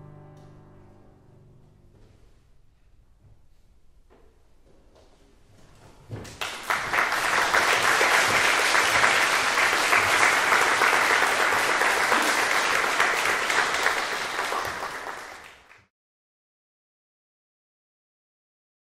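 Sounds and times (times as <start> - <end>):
audience applauding: 6.3 - 15.9.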